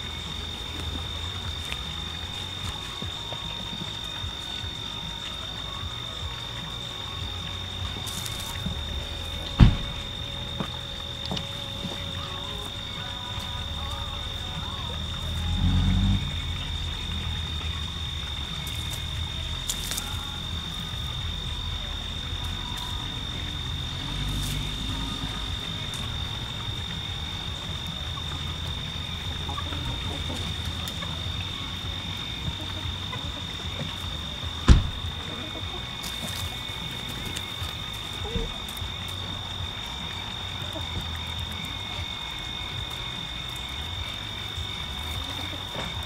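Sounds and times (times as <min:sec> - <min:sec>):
insects trilling: 0:00.0 - 0:46.0
low rumble: 0:00.0 - 0:46.0.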